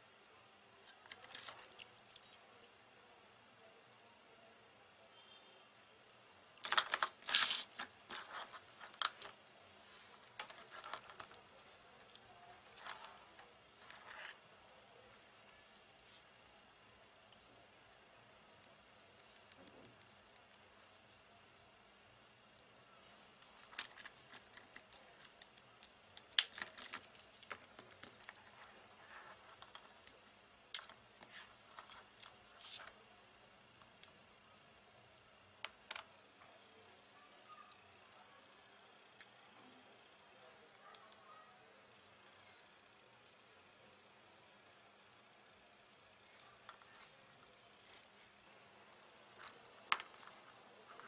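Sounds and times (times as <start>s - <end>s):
metal tools clicking and scraping: 0.9s - 2.4s, 23.4s - 30.1s.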